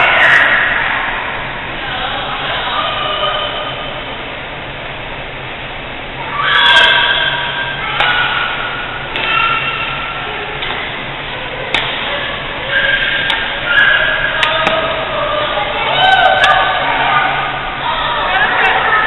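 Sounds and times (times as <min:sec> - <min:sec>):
racket hitting shuttlecock: 0:09.1 - 0:09.7, 0:11.7 - 0:12.1.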